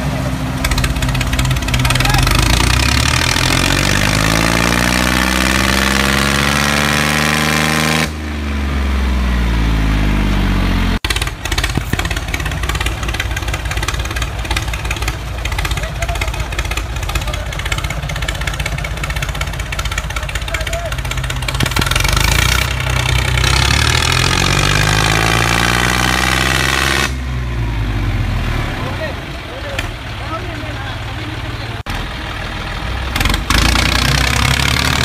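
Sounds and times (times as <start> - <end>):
tractor engine chugging: 0.0 - 4.3, 11.0 - 24.9, 27.3 - 35.0.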